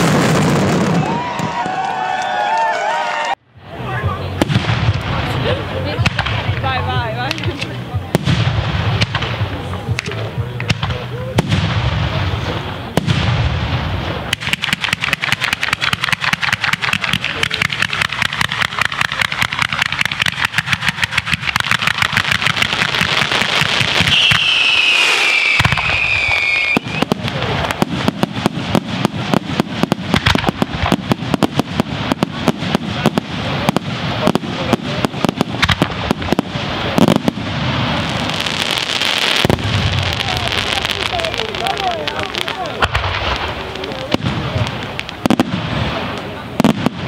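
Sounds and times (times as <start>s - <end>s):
fireworks bangs and crackles: 0.0s - 47.0s
falling firework whistle: 23.9s - 27.2s.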